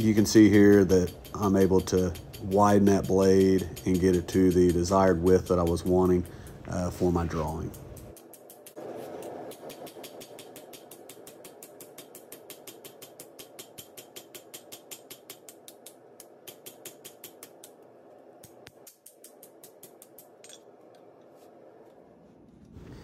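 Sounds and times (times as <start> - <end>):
hammer striking steel on anvil: 0.0 - 21.1.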